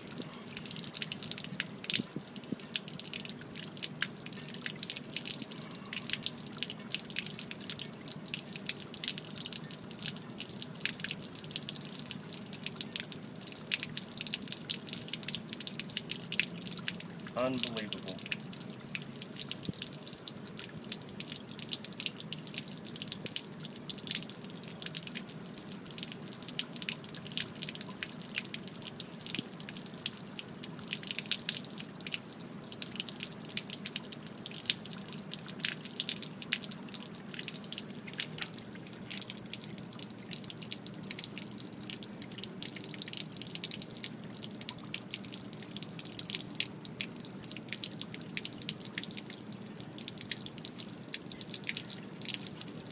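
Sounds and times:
water splattering on concrete: 0.2 - 52.9.

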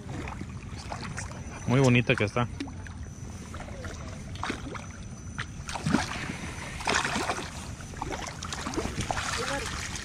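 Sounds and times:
fish thrashing and splashing: 2.6 - 10.0.

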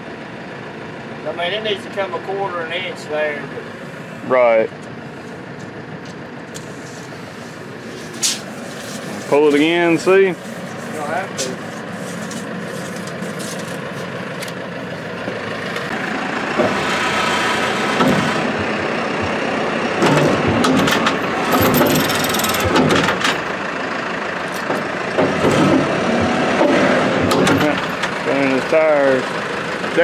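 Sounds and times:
tractor engine running: 0.0 - 30.0
metallic clanks of chains: 21.5 - 22.8.

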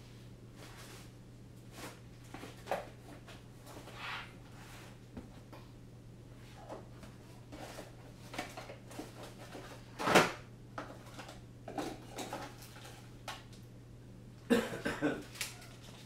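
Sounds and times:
steady low hum: 0.0 - 15.8
clicks and knocks of rummaging: 6.6 - 13.6.

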